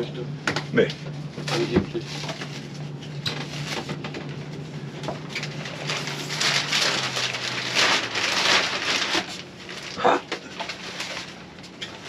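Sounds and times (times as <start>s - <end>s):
plastic bag rustling: 1.3s - 12.0s
gift wrapping crinkling: 5.2s - 12.0s.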